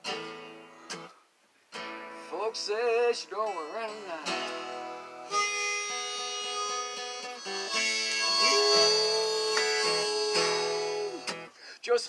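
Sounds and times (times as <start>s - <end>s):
blues instrumental chords: 0.0s - 1.1s, 1.7s - 11.5s.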